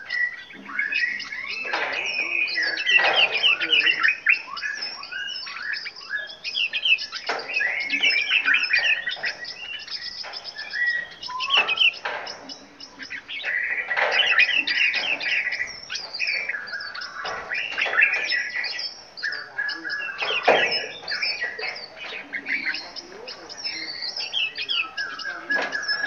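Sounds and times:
songbirds chirping and singing: 0.0s - 26.0s.

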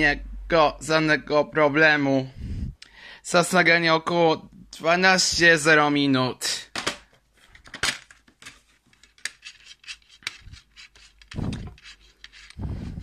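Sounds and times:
plastic case clicking and rubbing: 6.9s - 12.6s.

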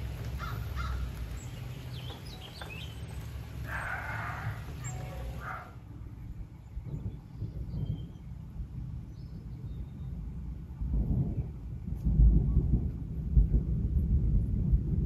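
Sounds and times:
wild birds calling: 0.0s - 8.3s
steady low rumble: 0.0s - 15.0s.

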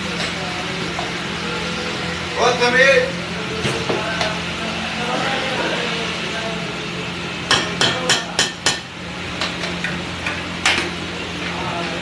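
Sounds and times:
metal ladle clanging on griddle: 7.4s - 11.0s.

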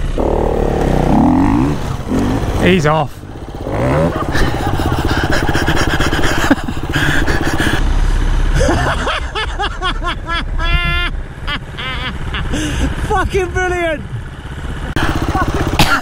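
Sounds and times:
dirt bike engine revving: 0.0s - 8.6s, 14.3s - 16.0s.

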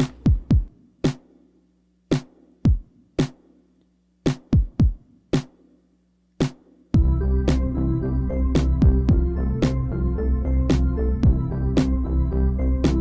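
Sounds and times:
drum machine beat: 0.0s - 5.8s, 6.4s - 13.0s
sustained chords and bass: 7.0s - 13.0s.

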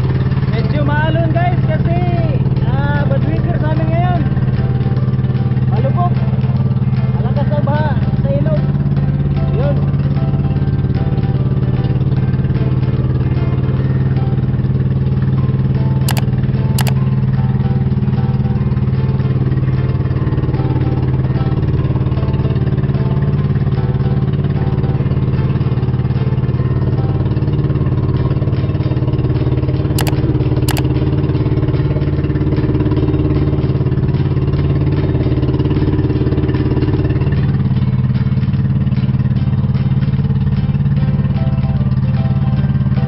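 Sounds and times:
boat engine droning: 0.0s - 43.0s
short sharp clicks: 16.1s - 17.0s, 30.0s - 30.9s.

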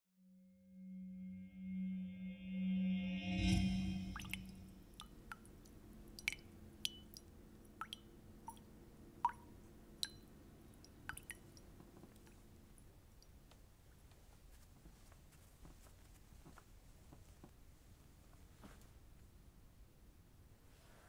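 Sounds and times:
sustained ringing tone: 0.6s - 4.9s
water dripping from faucet: 4.2s - 13.4s.

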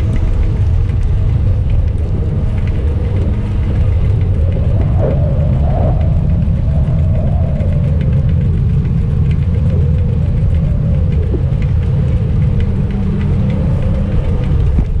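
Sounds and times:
faint ticks: 0.0s - 15.0s
wind buffeting microphone: 0.0s - 15.0s.

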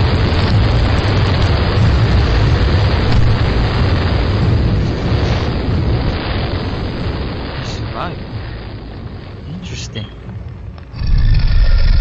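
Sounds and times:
cartoon explosive rumble: 0.0s - 10.0s, 10.9s - 12.0s.

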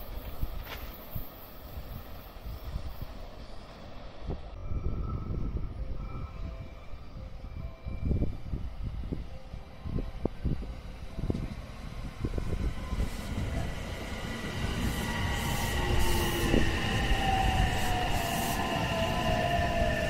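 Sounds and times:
train wheels rumbling: 10.1s - 20.0s.

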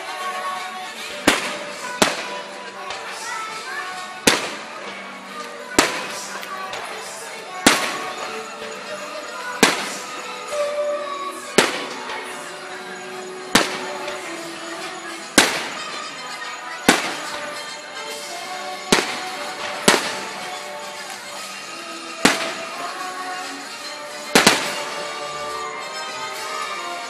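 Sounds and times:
music playing: 0.0s - 27.0s
fireworks bangs: 1.1s - 3.2s, 4.2s - 5.0s, 5.6s - 8.5s, 9.4s - 10.7s, 11.5s - 21.4s, 22.0s - 23.2s, 24.2s - 25.4s.

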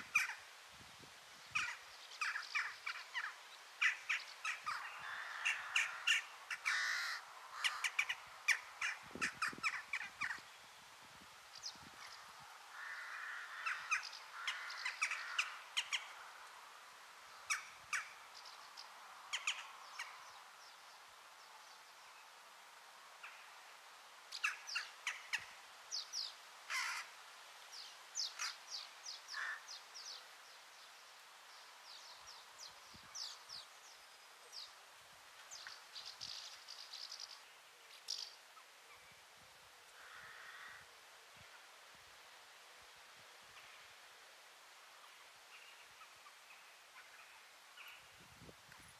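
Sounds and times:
faint background hiss: 0.0s - 48.9s
birds calling: 1.5s - 10.6s, 11.5s - 16.2s, 24.3s - 30.3s.

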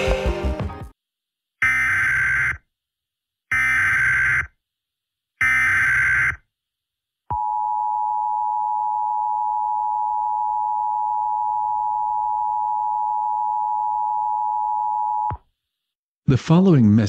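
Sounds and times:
steady two-tone alarm tone: 1.6s - 2.6s, 3.5s - 4.6s, 5.4s - 6.4s.

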